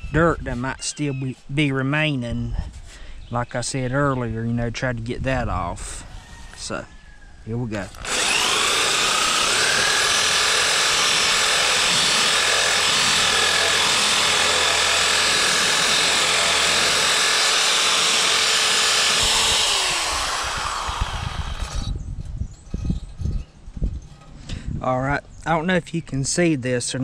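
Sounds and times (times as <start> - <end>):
drill motor whine: 7.9 - 22.0.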